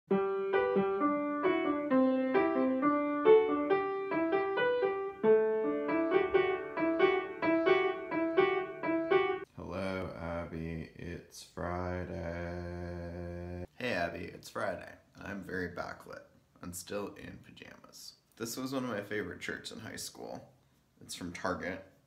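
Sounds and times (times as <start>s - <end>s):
piano melody: 0.1s - 9.5s.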